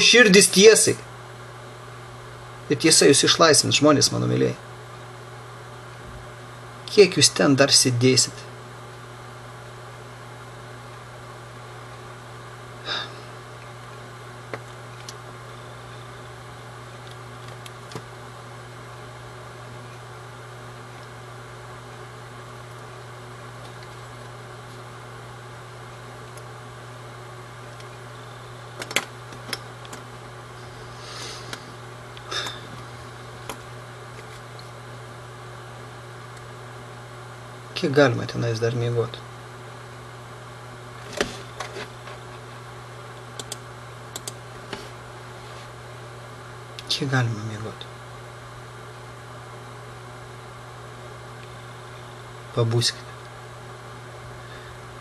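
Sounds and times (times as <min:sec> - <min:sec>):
low hum with faint hiss: 0:00.0 - 0:55.0
short breathy puff: 0:30.9 - 0:31.5
sharp clicks: 0:43.4 - 0:44.4.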